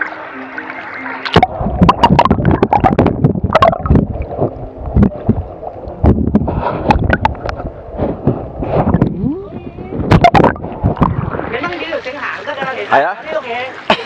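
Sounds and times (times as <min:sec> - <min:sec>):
underwater gurgling: 0:00.0 - 0:13.9
sea water sloshing and splashing: 0:00.1 - 0:14.0
low rumble: 0:01.4 - 0:11.7.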